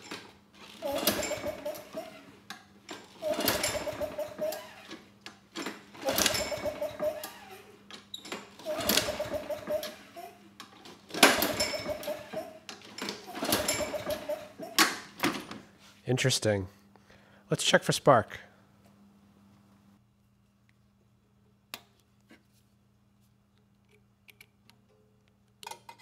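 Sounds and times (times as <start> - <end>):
mower engine pull-start whirring: 0.1 - 2.3, 2.9 - 5.0, 5.6 - 7.6, 8.5 - 10.1, 11.1 - 14.4.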